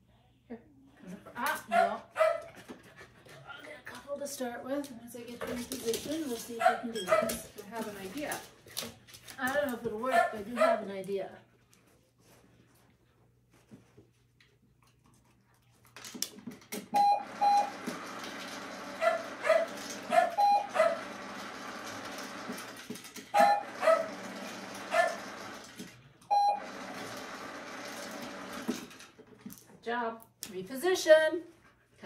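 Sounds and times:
short electronic beeps: 17.0s - 17.7s, 20.4s - 20.8s, 26.3s - 26.6s
puppy whining and yipping: 23.4s - 24.1s.

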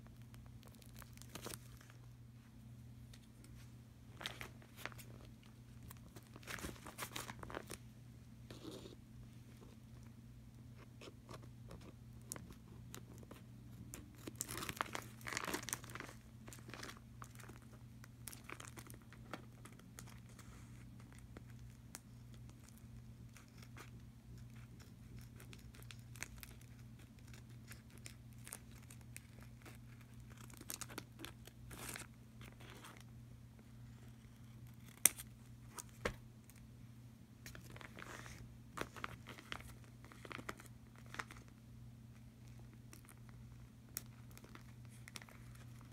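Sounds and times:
steady low hum: 0.0s - 45.9s
plastic packaging crinkling: 0.2s - 2.0s, 4.2s - 7.8s, 12.3s - 20.4s, 37.5s - 41.6s, 42.4s - 45.9s.

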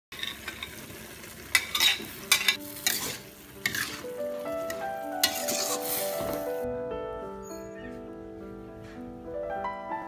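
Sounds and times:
vegetables sizzling: 0.1s - 6.6s
soft background music: 0.4s - 10.0s
spatula scraping a wok: 1.5s - 6.5s.

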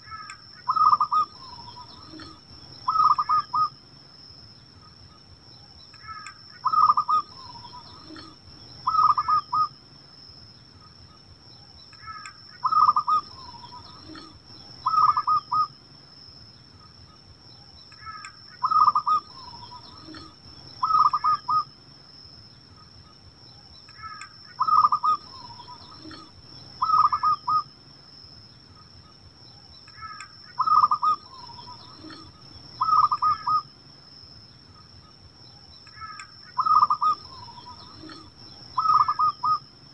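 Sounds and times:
dove cooing: 0.0s - 3.7s, 6.1s - 9.7s, 12.0s - 15.7s, 18.0s - 21.7s, 24.0s - 27.6s, 30.0s - 33.6s, 36.0s - 39.6s.

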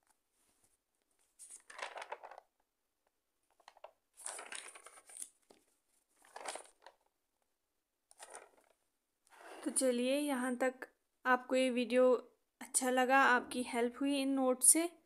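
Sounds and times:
notebook pages rustling: 0.0s - 2.5s, 3.5s - 7.1s, 8.1s - 8.8s.

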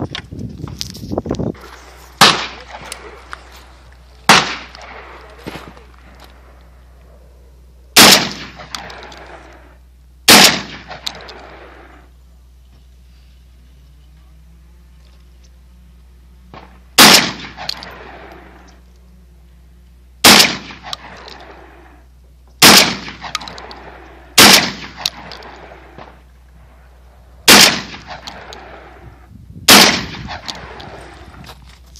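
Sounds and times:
shotgun shots with echo: 2.2s - 2.9s, 4.3s - 5.7s, 8.0s - 9.3s, 10.3s - 11.7s, 16.6s - 18.3s, 20.2s - 21.6s, 22.6s - 26.2s, 27.5s - 29.0s, 29.7s - 31.1s.

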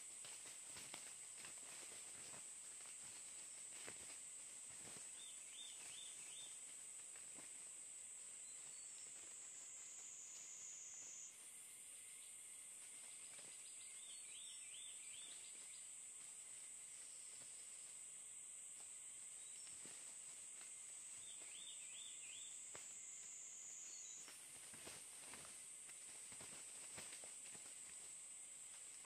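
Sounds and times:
rustles in dry leaves: 0.0s - 10.4s, 12.7s - 29.0s
high-pitched insect drone: 8.4s - 12.5s.

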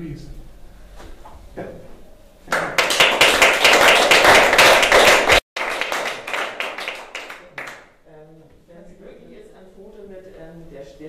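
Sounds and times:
audience applauding: 2.5s - 7.9s.

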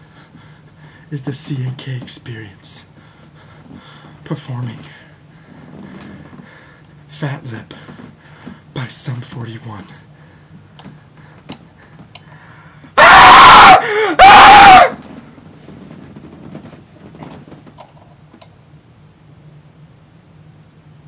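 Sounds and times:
person screaming: 13.0s - 15.0s.

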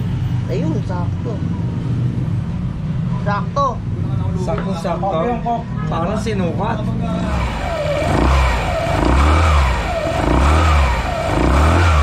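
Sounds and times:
scooter engine revving: 7.1s - 12.0s.

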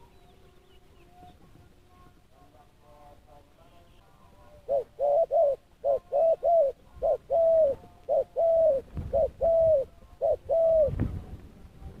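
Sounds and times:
dove cooing: 4.4s - 11.1s.

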